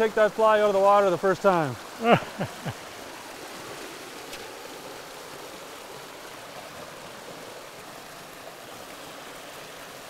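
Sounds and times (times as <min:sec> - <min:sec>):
river rushing over rocks: 0:00.0 - 0:10.0.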